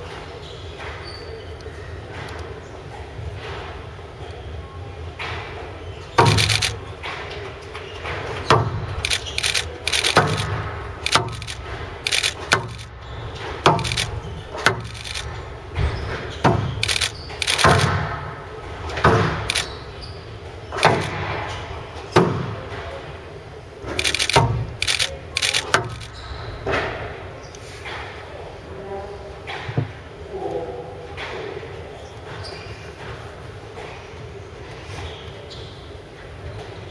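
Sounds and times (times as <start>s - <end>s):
ball hitting court walls: 6.2s - 7.4s, 8.0s - 19.8s.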